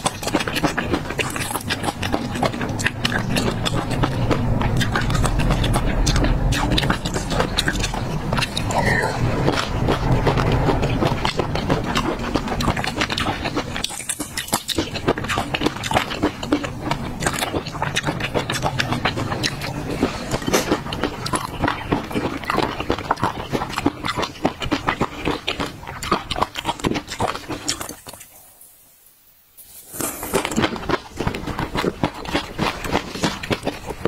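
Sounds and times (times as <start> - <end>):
wet sticky mouth sounds: 0.0 - 28.7, 29.6 - 34.0
plastic spoon scraping glass bowl: 29.6 - 30.6.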